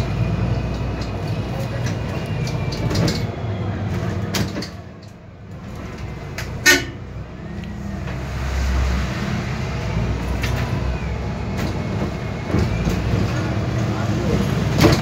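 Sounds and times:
bus engine rumble: 0.0 - 15.0
bus horn toot: 6.6 - 7.2.

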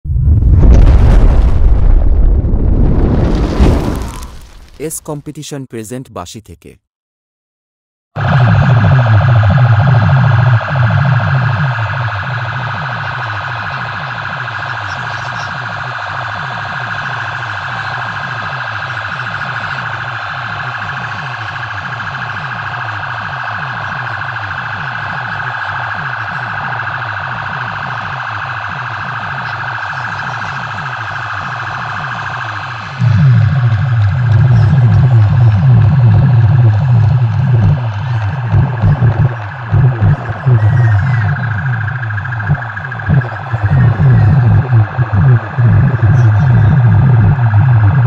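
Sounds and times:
falling bass sweep: 0.0 - 4.8, 8.2 - 14.9, 30.6 - 48.0
siren-like electronic sound: 8.2 - 48.0.

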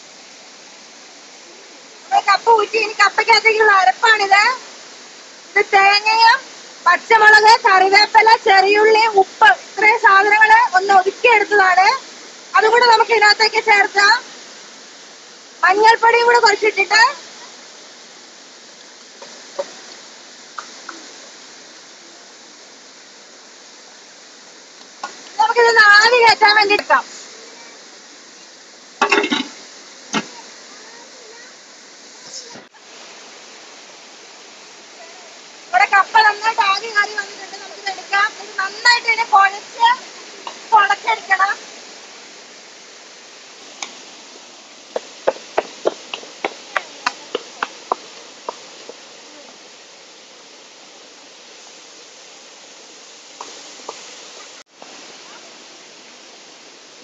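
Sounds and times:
fast-flowing stream: 0.0 - 57.0
ladle clinking on steel plate: 29.0 - 29.6
wooden spoon knocking metal pot: 29.0 - 29.6.

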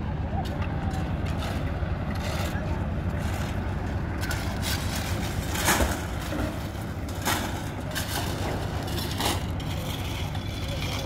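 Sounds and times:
concrete mixer humming: 0.0 - 11.0
sharp scraping clatters: 3.2 - 11.0.

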